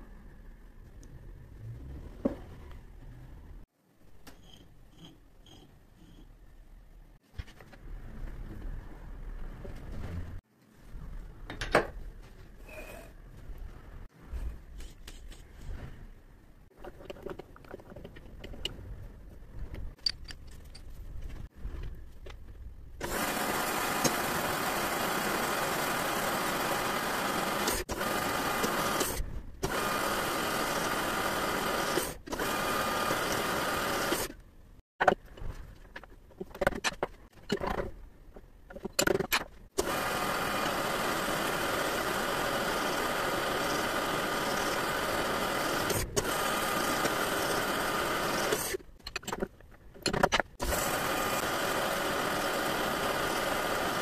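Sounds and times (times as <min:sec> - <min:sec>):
scattered clicks and knocks: 0:35.0 - 0:39.7, 0:49.0 - 0:50.6
lathe mechanical drone: 0:39.8 - 0:48.7.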